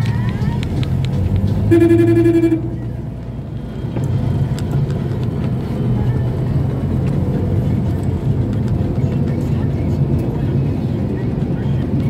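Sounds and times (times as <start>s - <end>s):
car engine rumble: 0.0s - 12.0s
slow traffic: 0.0s - 12.0s
car horn honk: 1.6s - 3.0s.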